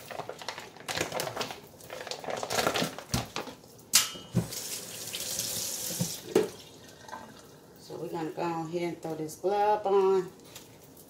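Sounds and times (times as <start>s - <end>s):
plastic packaging crinkling: 0.0s - 3.9s
tap running into a sink: 4.4s - 6.6s.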